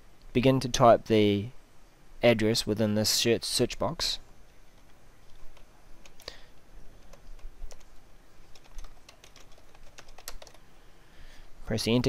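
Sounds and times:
computer keyboard typing: 0:04.7 - 0:06.4, 0:07.0 - 0:10.6.

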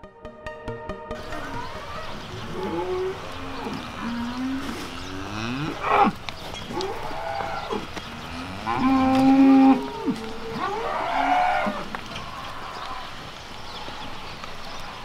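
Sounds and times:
cows mooing: 0:01.3 - 0:13.3.

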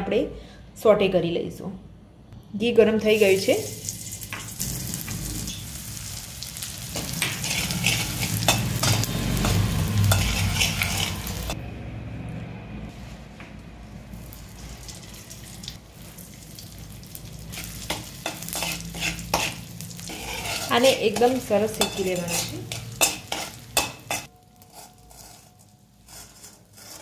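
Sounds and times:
gum sizzling in hot fat: 0:03.2 - 0:11.6, 0:14.2 - 0:27.0
metal spatula scraping a pan: 0:06.9 - 0:11.6, 0:17.5 - 0:27.0.

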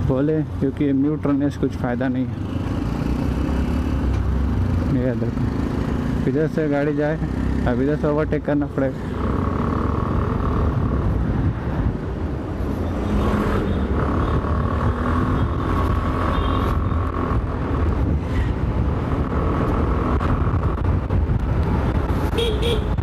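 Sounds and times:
road and wind noise: 0:00.0 - 0:23.0.

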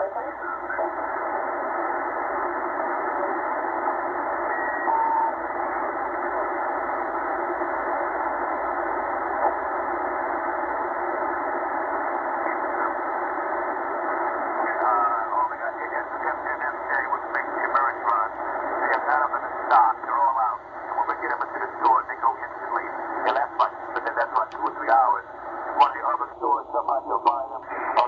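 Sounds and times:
radio static hiss: 0:00.0 - 0:28.0
whistling radio tone: 0:04.4 - 0:05.9.

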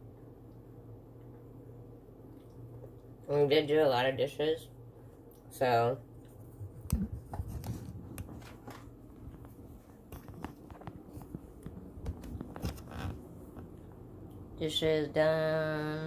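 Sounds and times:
phone handling clicks and scrapes: 0:10.1 - 0:13.2.

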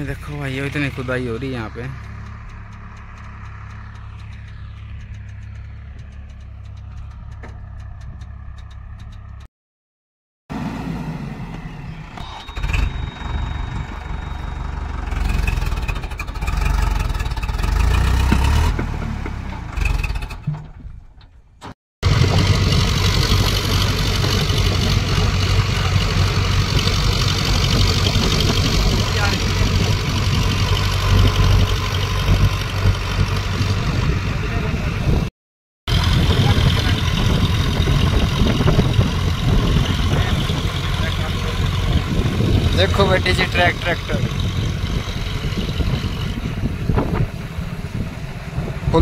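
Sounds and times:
tractor diesel running under load: 0:00.0 - 0:09.4, 0:10.5 - 0:20.9, 0:22.0 - 0:35.3, 0:35.9 - 0:49.0
diesel engines rumbling: 0:00.0 - 0:09.5, 0:10.5 - 0:35.3, 0:35.9 - 0:49.0
engine clatter: 0:00.0 - 0:09.5, 0:10.5 - 0:35.3, 0:35.9 - 0:49.0.

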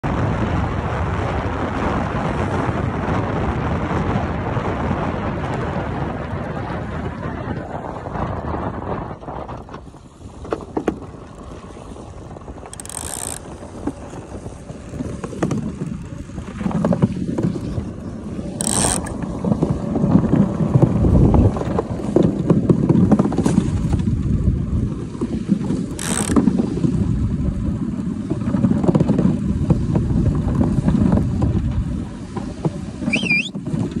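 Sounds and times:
iceboat runners rumbling on ice: 0:00.0 - 0:34.0
high-pitched pings: 0:33.1 - 0:33.5.

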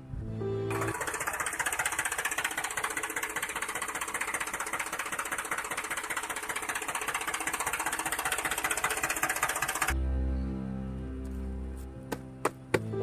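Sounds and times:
rapid mechanical rattle: 0:00.7 - 0:10.0.

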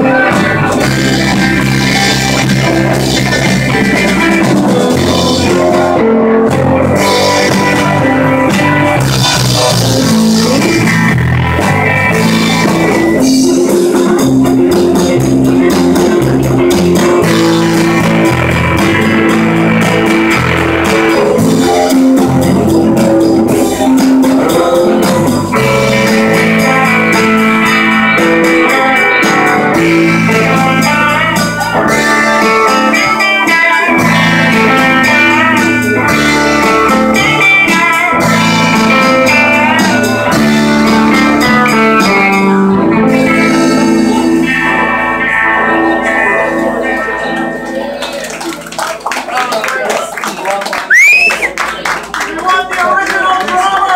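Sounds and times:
drum kit: 0:00.0 - 0:46.8
rock band playing: 0:00.0 - 0:50.0, 0:50.6 - 0:52.4
electric guitars: 0:00.0 - 0:52.3.

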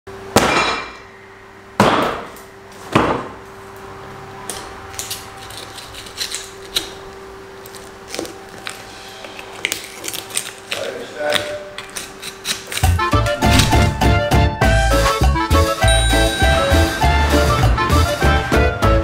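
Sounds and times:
knife cutting with crackling clicks: 0:04.6 - 0:08.8, 0:09.5 - 0:13.7.

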